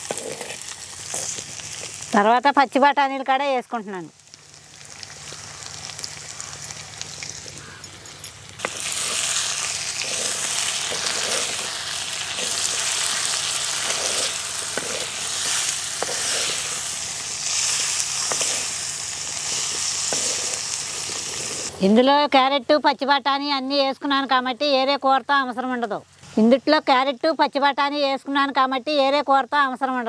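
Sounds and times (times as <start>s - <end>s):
vegetables sizzling in oil: 0.0s - 22.4s.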